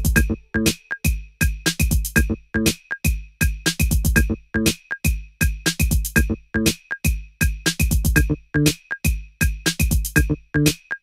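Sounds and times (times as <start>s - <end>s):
drum machine kicks: 0.0s - 10.8s.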